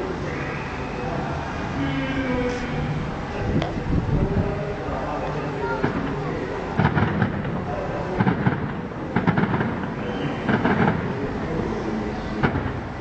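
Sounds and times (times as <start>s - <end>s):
fireworks bursting: 5.8s - 11.4s, 12.4s - 13.0s.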